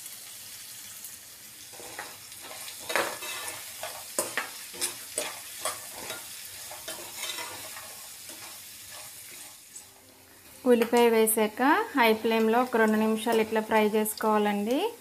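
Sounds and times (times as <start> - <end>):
food sizzling in oil: 0.0 - 15.0
spatula stirring and scraping pan: 1.7 - 10.9.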